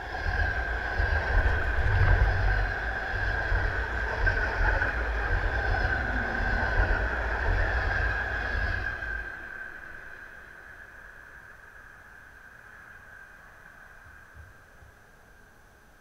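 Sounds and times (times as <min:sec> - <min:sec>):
train wheels rumbling on rails: 0:00.0 - 0:11.6
train whine: 0:00.0 - 0:15.6.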